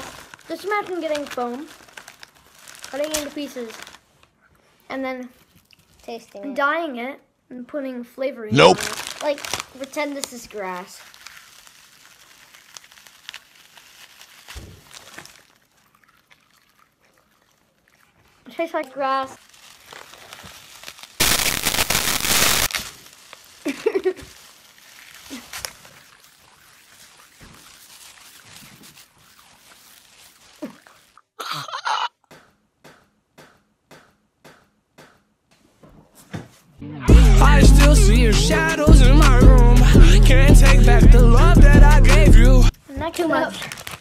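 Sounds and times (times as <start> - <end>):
candy strands crinkling: 0.0 - 4.3, 5.4 - 6.1, 8.5 - 31.3, 38.1 - 44.0
boy coughing: 31.4 - 32.1
music with steady beat: 36.9 - 42.7.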